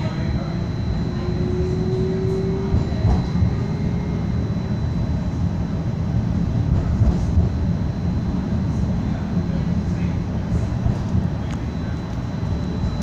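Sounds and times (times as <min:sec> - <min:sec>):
thin high tone: 0:00.0 - 0:05.2
low hum: 0:00.0 - 0:13.0
streetcar low rumble: 0:00.0 - 0:13.0.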